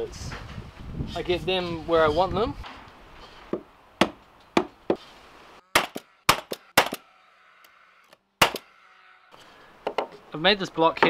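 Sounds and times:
nail gun firing: 5.8s - 7.1s, 8.4s - 8.8s.

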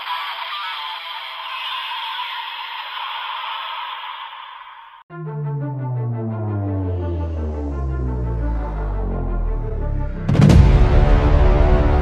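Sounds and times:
music: 5.1s - 12.0s
heavy boom-like hit: 6.2s - 12.0s.

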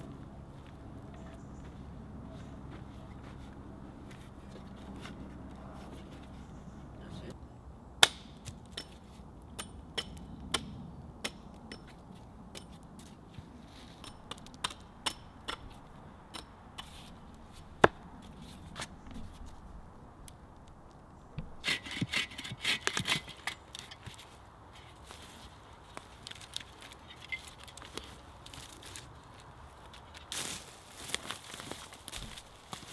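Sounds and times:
rasping strokes on a log: 21.5s - 23.5s.

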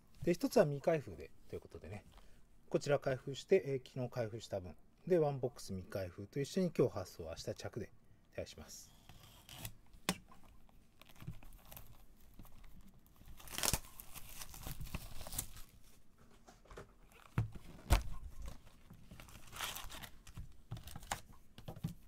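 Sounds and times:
plastic wrap tearing and crinkling: 10.9s - 16.0s, 17.0s - 21.4s.

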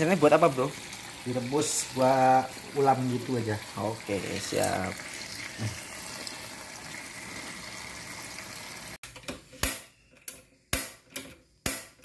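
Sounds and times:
tap water running into steel bowl: 0.0s - 9.0s.

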